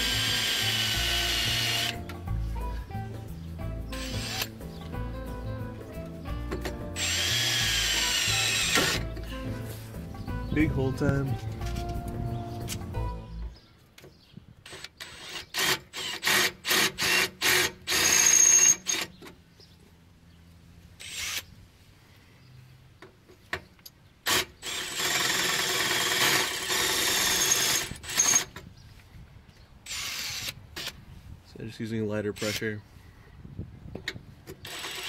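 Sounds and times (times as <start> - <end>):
electric drill boring through steel: 0.0 - 2.0, 4.0 - 4.5, 7.0 - 9.1, 24.3 - 28.5, 29.9 - 30.9, 34.6 - 35.0.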